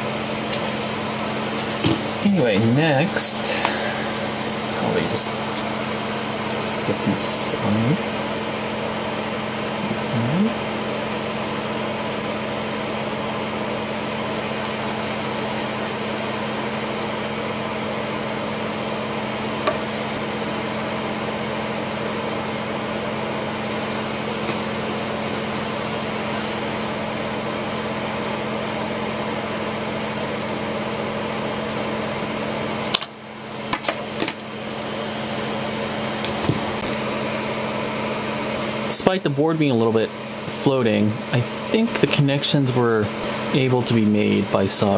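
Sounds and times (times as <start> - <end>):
mechanical hum: 0.0 - 44.9
soldering iron hiss: 23.5 - 26.8.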